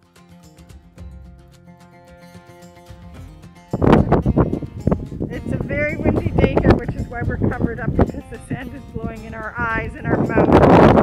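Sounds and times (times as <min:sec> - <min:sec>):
soft background music: 0:02.5 - 0:11.0
wind buffeting microphone: 0:03.7 - 0:11.0.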